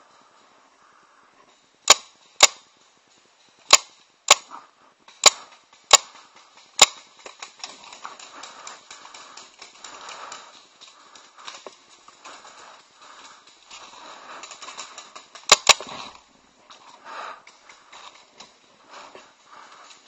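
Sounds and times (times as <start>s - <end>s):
faint ticks and rustling: 0.0s - 20.0s
paintball marker shots: 1.9s - 2.6s, 3.7s - 4.5s, 5.2s - 6.1s, 15.4s - 15.9s.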